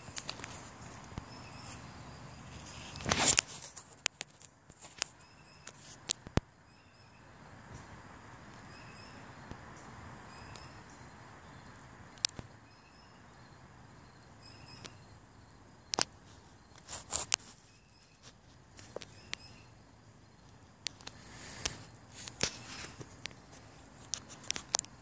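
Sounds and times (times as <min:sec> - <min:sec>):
sharp clicks: 0:12.1 - 0:12.5, 0:20.4 - 0:25.0.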